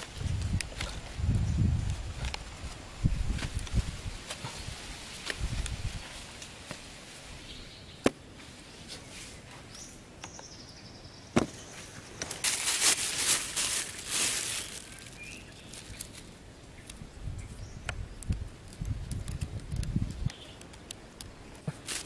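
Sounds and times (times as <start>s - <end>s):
rustling hiss: 0.0s - 10.4s, 11.5s - 22.0s
faint bird chirp: 9.0s - 12.0s, 14.6s - 16.0s, 20.2s - 20.6s.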